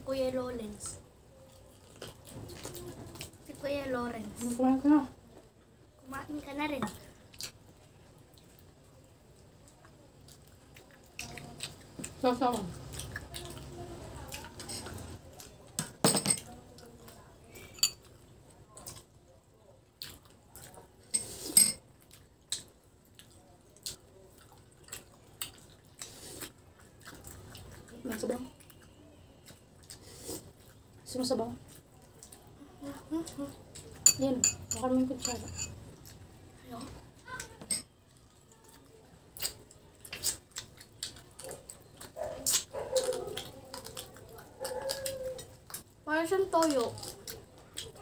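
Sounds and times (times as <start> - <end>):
wet chewing and lip-smacking: 0.8 - 3.6, 6.9 - 15.8, 18.0 - 21.1, 21.8 - 34.0, 35.8 - 48.0
cutlery clinking on a plate: 15.8 - 16.5, 17.7 - 18.1, 21.1 - 21.8, 34.0 - 35.8.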